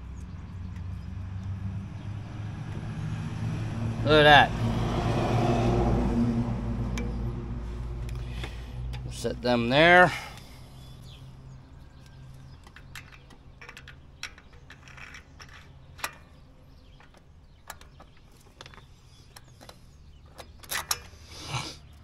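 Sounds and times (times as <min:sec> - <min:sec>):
small metal parts clicking: 0:12.0 - 0:21.4.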